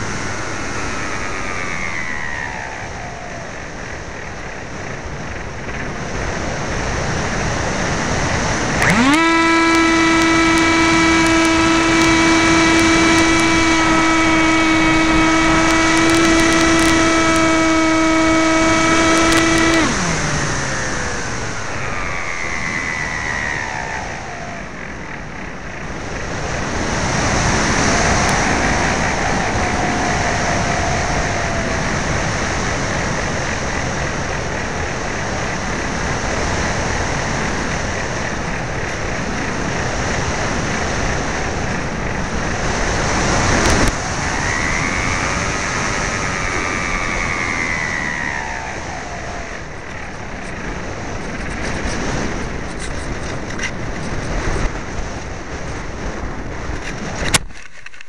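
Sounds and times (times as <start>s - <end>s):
electric motor whine: 0.0s - 57.4s
wind rushing: 9.8s - 57.3s.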